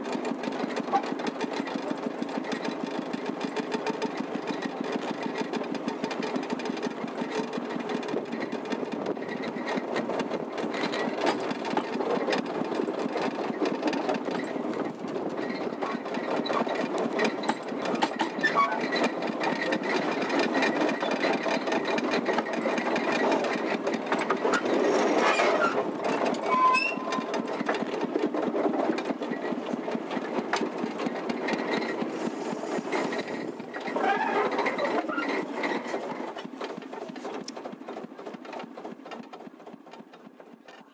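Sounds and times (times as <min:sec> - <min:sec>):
locomotive engine clattering: 0:00.0 - 0:40.9.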